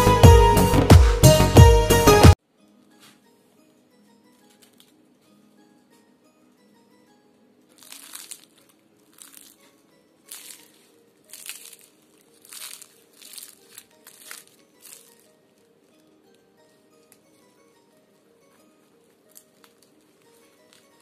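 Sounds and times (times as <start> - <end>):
soft background music: 0.0 - 21.0
pastry crust crackling and crunching: 7.7 - 16.5, 18.5 - 21.0.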